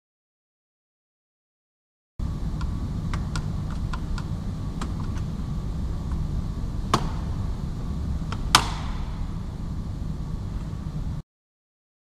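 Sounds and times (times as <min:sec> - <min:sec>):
steady low hum: 0:02.2 - 0:11.2.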